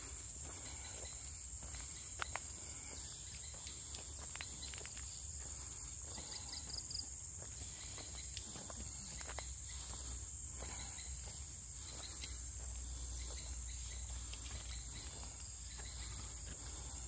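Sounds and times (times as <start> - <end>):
footsteps on trail: 0.0 - 17.0
insects droning: 0.0 - 17.0.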